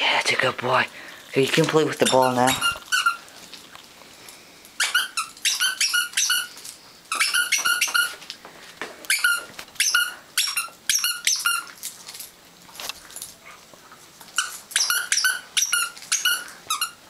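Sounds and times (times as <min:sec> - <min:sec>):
squeaky toy ball squeaking: 0:02.0 - 0:03.2, 0:04.8 - 0:06.5, 0:07.1 - 0:08.2, 0:09.1 - 0:11.7, 0:14.4 - 0:17.0.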